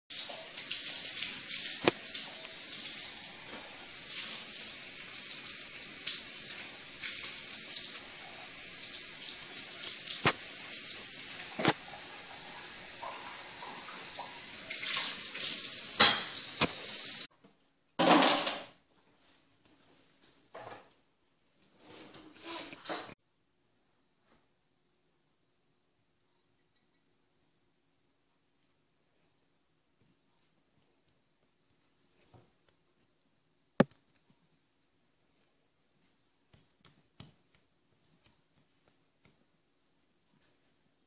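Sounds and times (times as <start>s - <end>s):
water running from a tap: 0.1s - 17.3s.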